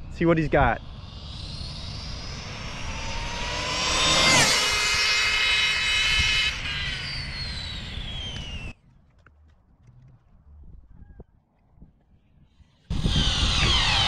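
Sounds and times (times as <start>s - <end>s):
rc car motor whine passing: 0.0s - 8.8s, 12.9s - 14.0s.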